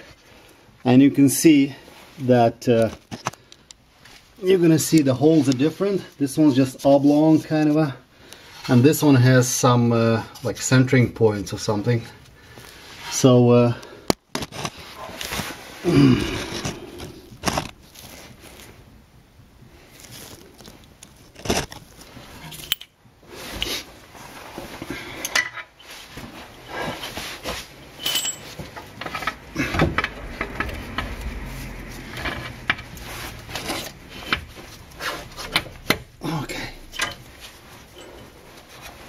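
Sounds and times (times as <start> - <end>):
wrench and bolts clinking on metal: 22.4 - 23.0, 27.8 - 29.4, 36.8 - 37.3
low rumble of handling: 26.2 - 36.2.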